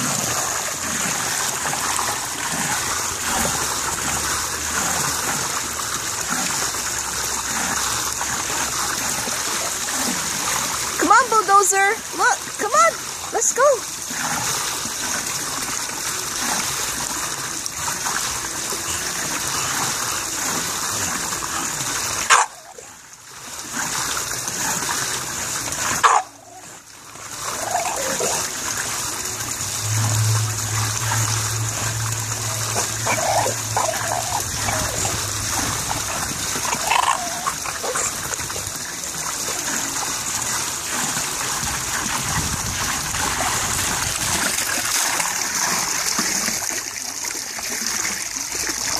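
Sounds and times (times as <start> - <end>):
water trickling and splashing: 0.0 - 48.9
low steady hum: 26.0 - 45.3
dog grumbling and whining: 27.5 - 28.5, 32.7 - 38.3.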